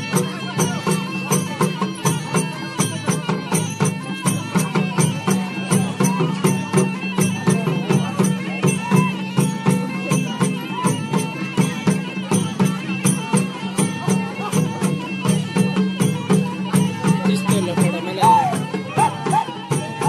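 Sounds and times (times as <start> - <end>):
drums beating quick rhythm: 0.0 - 20.0
wavering melody: 0.0 - 20.0.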